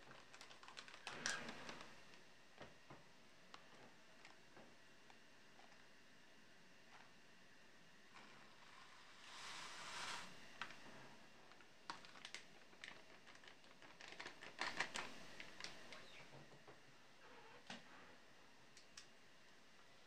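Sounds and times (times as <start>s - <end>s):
small sharp clicks and ticks: 0.0s - 2.2s
plastic packet crinkling: 0.1s - 1.8s, 11.9s - 15.8s.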